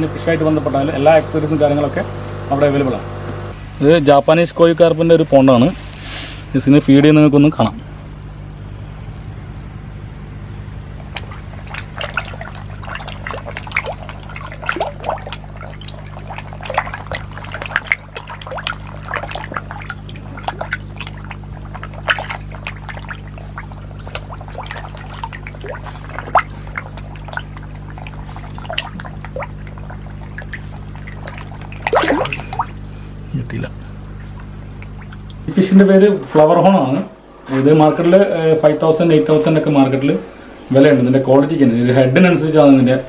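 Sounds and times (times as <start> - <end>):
steady low hum: 0.0 - 43.0
fish splashing at water surface: 10.9 - 33.2, 34.1 - 35.5.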